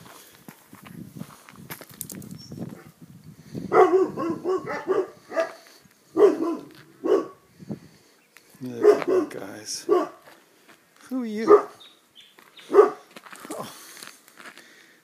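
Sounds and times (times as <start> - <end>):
dogs barking: 3.7 - 7.4, 8.8 - 10.2, 11.4 - 11.8, 12.6 - 13.1.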